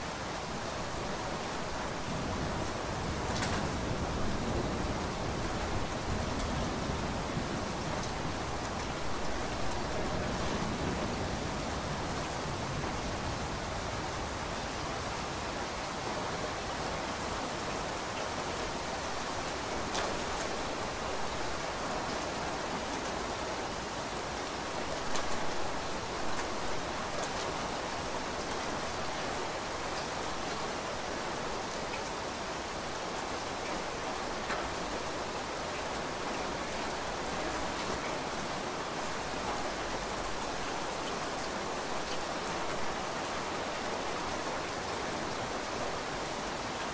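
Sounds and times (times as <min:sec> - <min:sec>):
heavy rainfall: 0:00.0 - 0:46.9.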